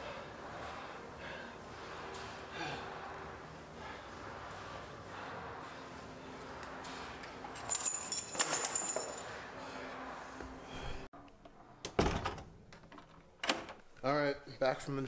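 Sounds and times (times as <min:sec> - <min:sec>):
steady low hum: 0:00.0 - 0:07.7.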